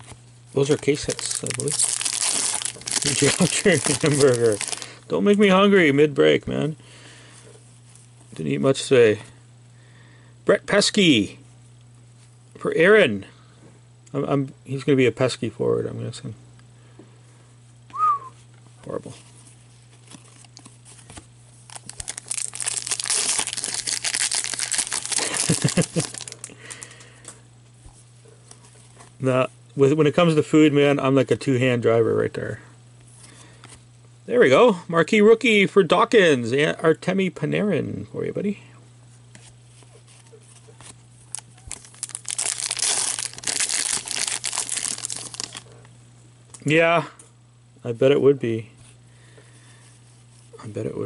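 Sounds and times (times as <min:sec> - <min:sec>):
wrapper being torn and crinkled: 0:00.6 - 0:05.0, 0:21.6 - 0:26.5, 0:40.8 - 0:45.6.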